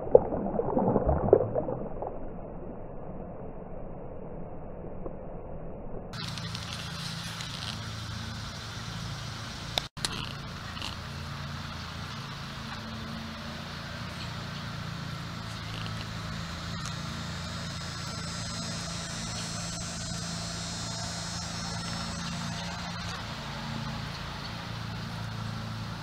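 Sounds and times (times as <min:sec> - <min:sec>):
low motor-like hum: 0:00.0 - 0:26.0
high insect buzz: 0:15.4 - 0:23.6.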